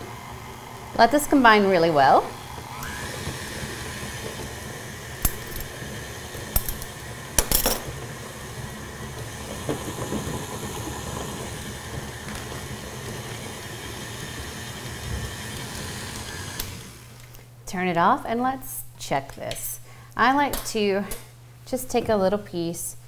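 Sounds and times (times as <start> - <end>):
stand mixer running: 0.0 - 17.2.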